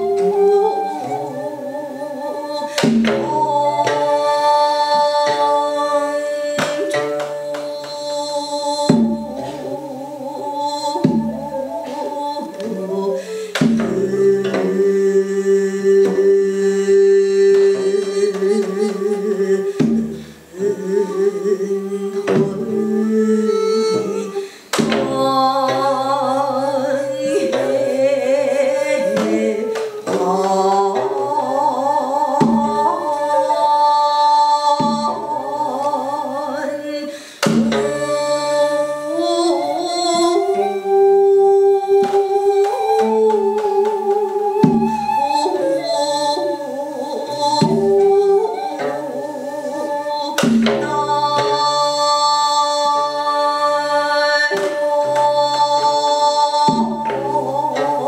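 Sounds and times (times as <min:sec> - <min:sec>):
sustained instrumental accompaniment: 0:00.0 - 0:58.0
woman singing with vibrato: 0:00.0 - 0:58.0
sharp drum strokes: 0:06.2 - 0:10.0, 0:13.2 - 0:21.0, 0:22.0 - 0:35.9, 0:37.4 - 0:40.3, 0:41.9 - 0:45.5, 0:54.5 - 0:58.0.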